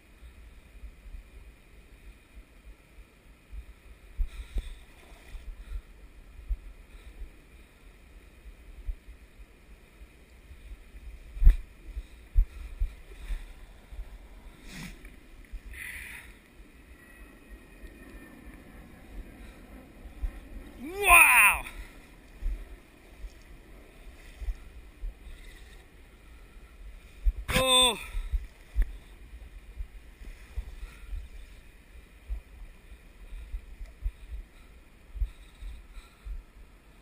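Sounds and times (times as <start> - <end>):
river water: 0.0 - 37.0
wind rumble on microphone: 0.0 - 37.0.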